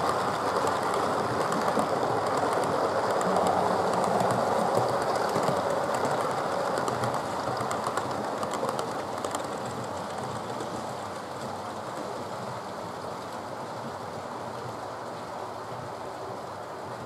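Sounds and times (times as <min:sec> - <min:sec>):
wheels clicking over rail joints: 0:00.0 - 0:12.2.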